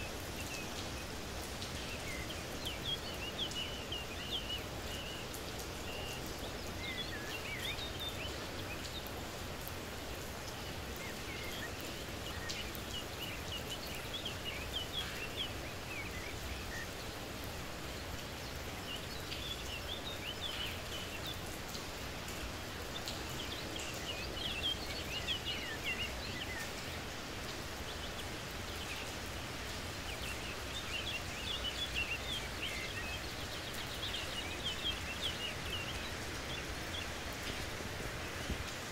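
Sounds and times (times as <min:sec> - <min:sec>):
birds chirping: 0:00.0 - 0:38.9
light rain hissing: 0:00.0 - 0:38.9.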